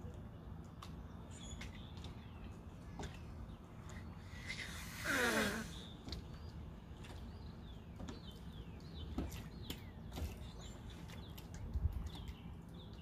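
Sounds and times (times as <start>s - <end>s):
manatee breathing out huff: 4.2s - 6.0s.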